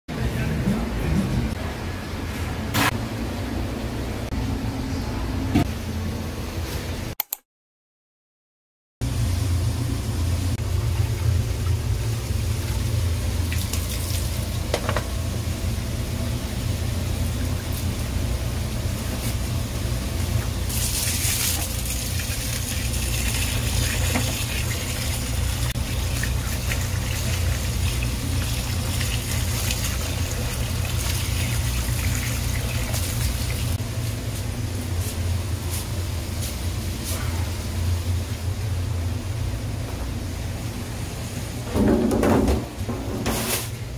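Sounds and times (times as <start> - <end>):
low machinery hum: 0.1 - 7.1, 9.0 - 43.9
hose water splashing onto rice: 20.7 - 33.8.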